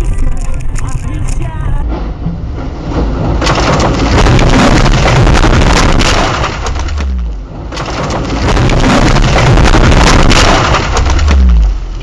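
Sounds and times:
car crashing through bushes: 3.2 - 11.9
branches cracking and snapping: 3.4 - 12.0.

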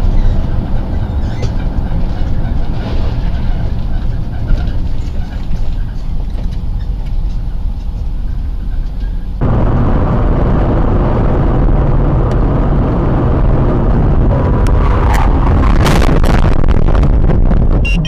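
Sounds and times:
car engine and road rumble: 0.0 - 18.0.

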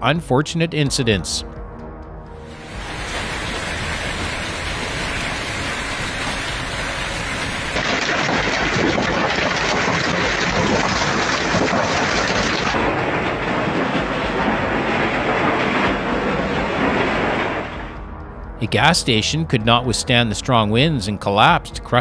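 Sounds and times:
heavy hail and rain pelting: 2.6 - 17.9.

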